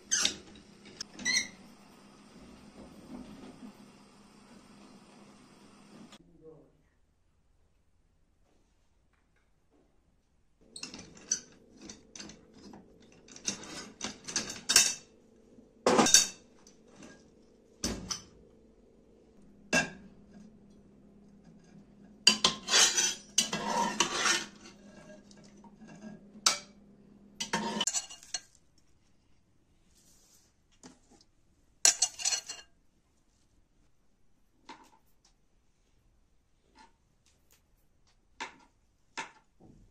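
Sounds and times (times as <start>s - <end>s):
metal tongs clinking on pot: 31.9s - 32.7s.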